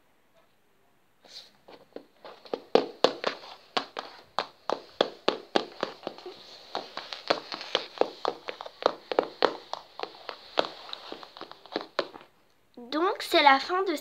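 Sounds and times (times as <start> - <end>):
toy hooves tapping on floor: 1.9 - 12.3.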